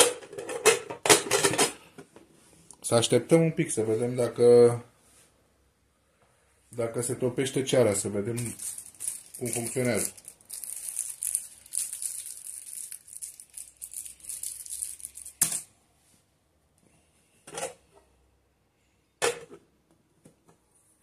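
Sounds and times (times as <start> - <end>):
crackly rustling: 8.3 - 15.4.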